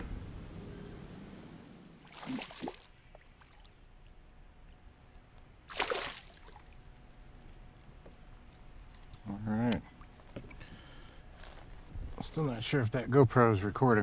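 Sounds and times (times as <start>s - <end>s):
fish splashing in water: 2.0s - 3.7s, 5.7s - 6.7s.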